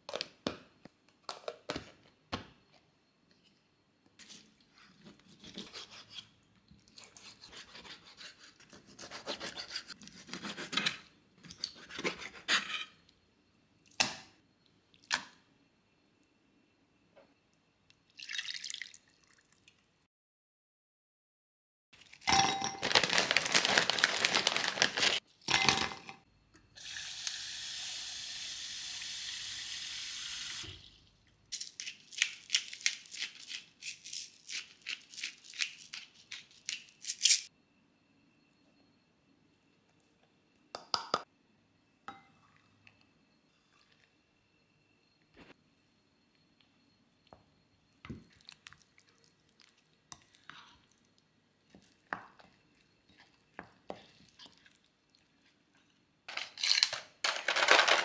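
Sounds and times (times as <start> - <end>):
food preparation handling: 22.0 - 25.2.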